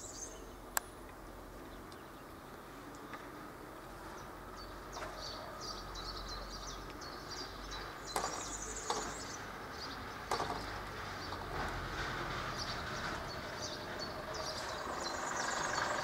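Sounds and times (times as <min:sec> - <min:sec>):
birds chirping: 0:00.0 - 0:00.7, 0:01.4 - 0:16.0
crossing barriers clunking: 0:07.7 - 0:16.0.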